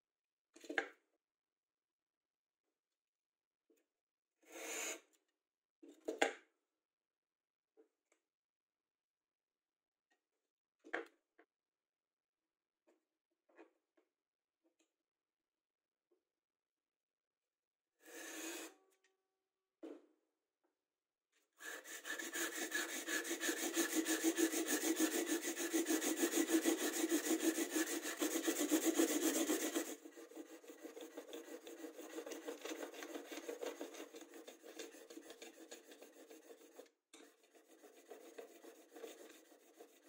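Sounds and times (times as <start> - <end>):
chisel scraping on sandpaper: 21.6 - 40.0.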